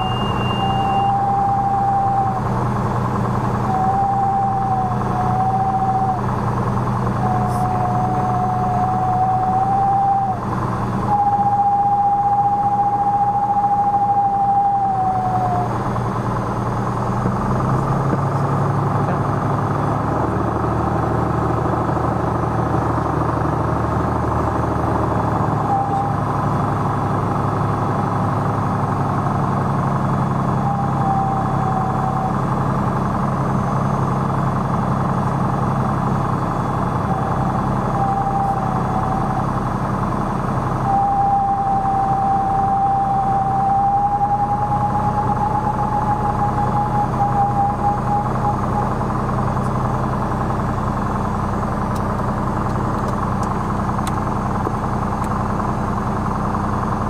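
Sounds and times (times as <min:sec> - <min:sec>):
high clear tone: 0:00.0 - 0:02.5
aircraft piston engine idling: 0:00.0 - 0:20.7, 0:21.8 - 0:57.0.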